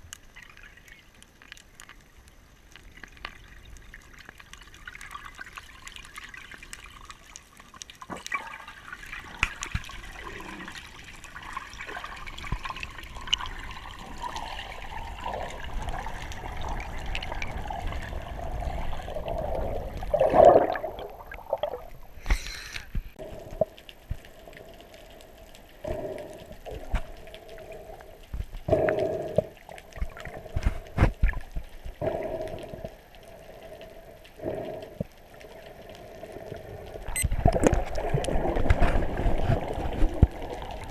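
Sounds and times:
muffled underwater wash: 0:00.0 - 0:40.9
swirl of bubbles: 0:11.5 - 0:22.0.

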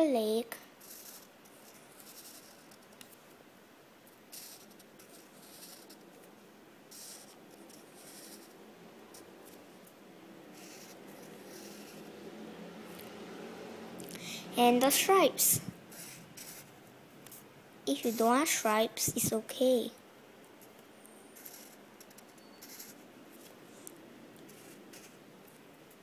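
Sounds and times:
marker scratching on paper: 0:00.8 - 0:03.0, 0:04.3 - 0:06.2, 0:06.9 - 0:09.6, 0:10.5 - 0:12.1, 0:14.7 - 0:16.7, 0:17.3 - 0:19.7, 0:21.4 - 0:23.5, 0:24.4 - 0:25.2.

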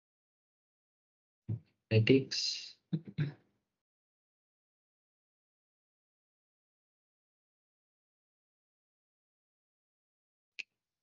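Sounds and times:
man's voice: 0:01.9 - 0:03.3.

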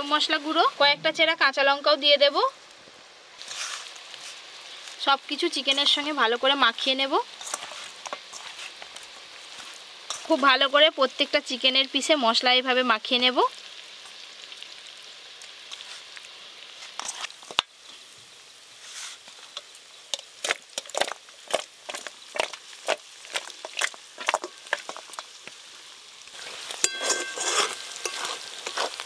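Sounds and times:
frying sizzle: 0:00.0 - 0:29.0
onions frying: 0:00.0 - 0:29.0
metal spatula scraping pan: 0:07.4 - 0:08.9, 0:09.5 - 0:10.5, 0:16.8 - 0:18.0, 0:26.4 - 0:29.0
hands squelching in wet food: 0:20.4 - 0:25.2.

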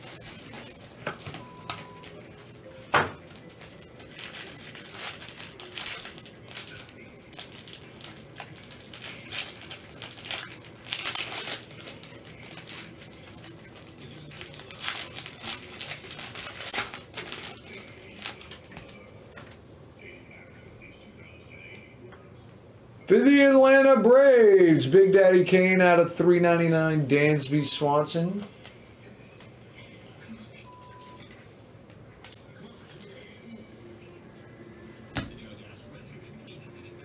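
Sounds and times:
plastic packaging crinkling: 0:03.2 - 0:19.0.

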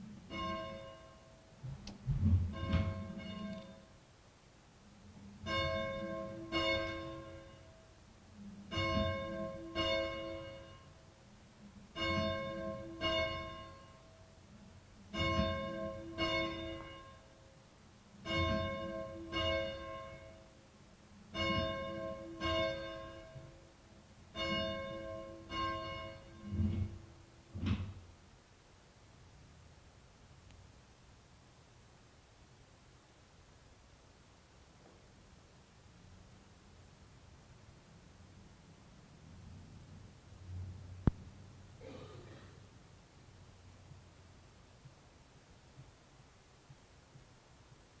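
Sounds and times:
church bell ringing: 0:00.3 - 0:01.4, 0:02.5 - 0:03.9, 0:05.4 - 0:07.7, 0:08.7 - 0:11.0, 0:12.0 - 0:14.0, 0:15.1 - 0:17.3, 0:18.2 - 0:20.5, 0:21.3 - 0:23.6, 0:24.3 - 0:26.8.

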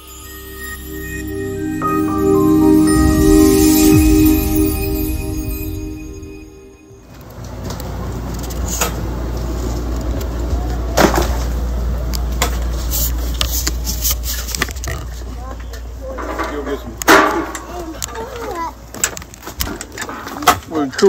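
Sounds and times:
steady low rumble: 0:00.0 - 0:07.2
logo intro music with ringing tones: 0:00.0 - 0:07.3.

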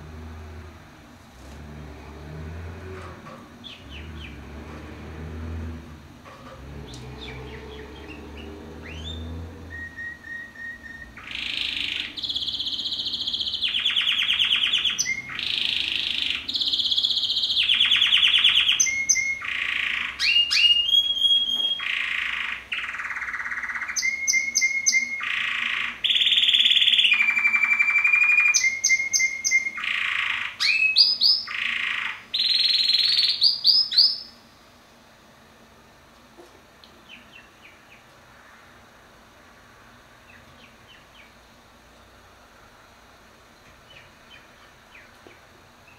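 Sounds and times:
canary singing trills: 0:03.5 - 0:04.6, 0:06.8 - 0:34.5, 0:37.0 - 0:38.5, 0:40.2 - 0:41.6, 0:43.8 - 0:45.9.

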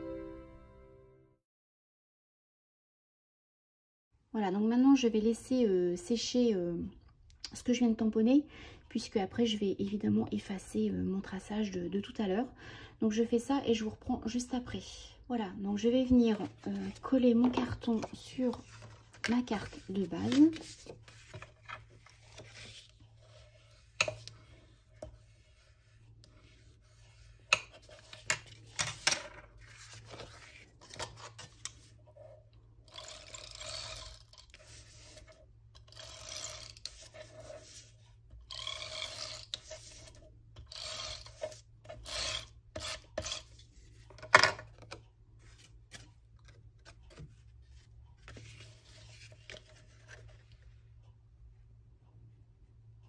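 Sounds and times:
tape runner scraping on paper: 0:32.9 - 0:43.6.

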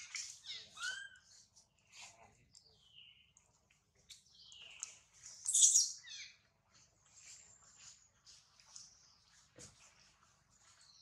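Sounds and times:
baby monkey crying in squeals: 0:00.2 - 0:01.3.

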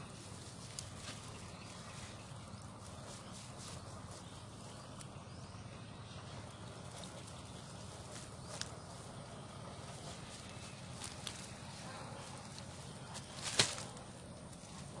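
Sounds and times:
mesh trap taps and rustles: 0:13.2 - 0:14.0.

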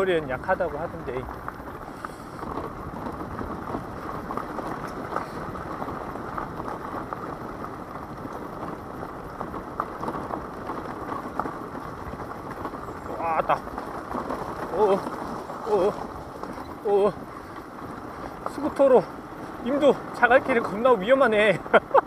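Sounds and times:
loose stones ticking under tyres: 0:00.0 - 0:22.0
scooter engine and tyres rumbling: 0:00.0 - 0:22.0.

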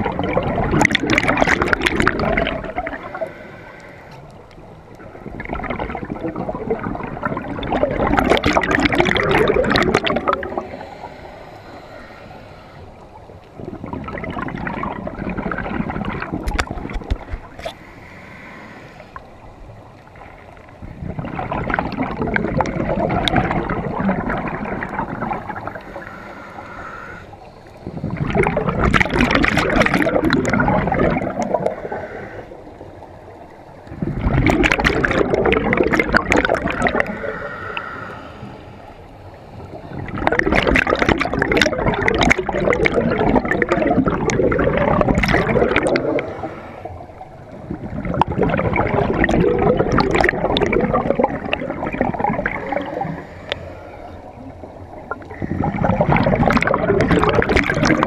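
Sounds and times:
exhaled bubbles gurgling: 0:00.0 - 0:58.0
hissing inhalations: 0:02.9 - 0:04.3, 0:10.5 - 0:13.2, 0:17.6 - 0:19.5, 0:25.5 - 0:28.2, 0:31.5 - 0:32.7, 0:36.9 - 0:40.0, 0:46.1 - 0:47.2, 0:52.7 - 0:54.4.

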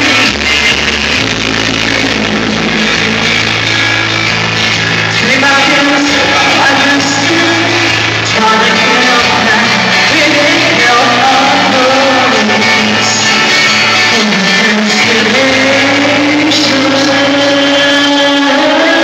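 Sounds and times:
backing music over loudspeakers: 0:00.0 - 0:19.0
woman singing pop song: 0:04.6 - 0:19.0.

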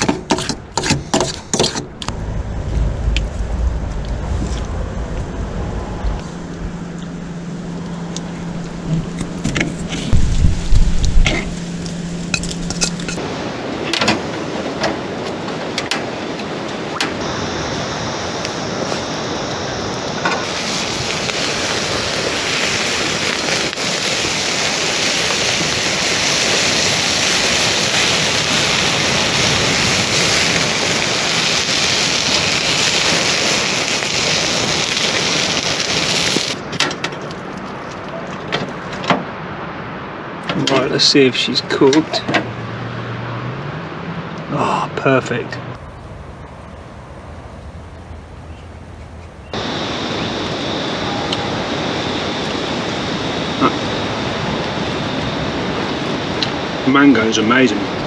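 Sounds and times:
fish sizzling on campfire: 0:17.2 - 0:36.7, 0:45.8 - 0:56.6.

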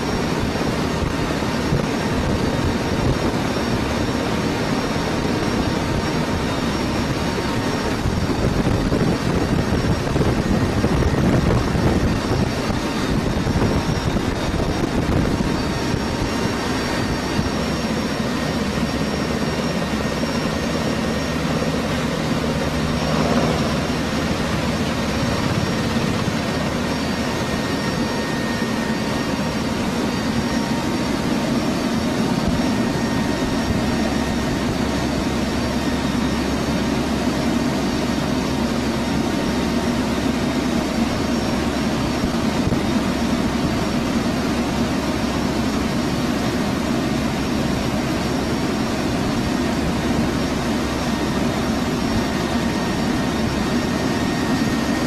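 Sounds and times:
turboprop engines droning: 0:00.0 - 0:55.0
rushing air: 0:20.2 - 0:34.6.

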